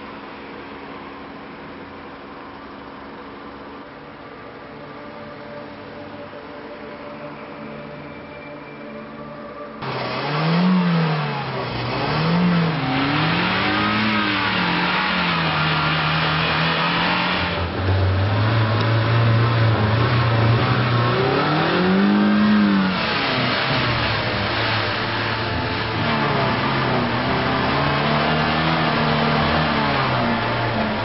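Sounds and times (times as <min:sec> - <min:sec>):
car engine revving: 0:09.8 - 0:31.0.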